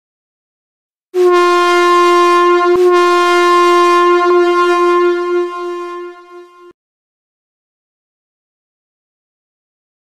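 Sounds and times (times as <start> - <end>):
electronic buzzer tone: 1.2 - 6.8.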